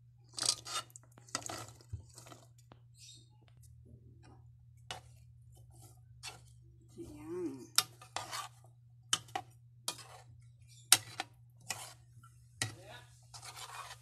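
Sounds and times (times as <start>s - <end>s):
metal spoon scraping metal bowl: 0.3s - 2.4s, 7.7s - 14.0s.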